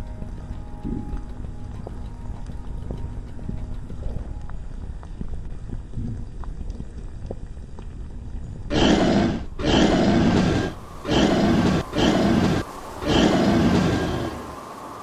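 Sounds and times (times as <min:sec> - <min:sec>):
faint ticks: 0:00.0 - 0:08.6
low rumble: 0:00.0 - 0:14.5
monster roars: 0:08.7 - 0:14.5.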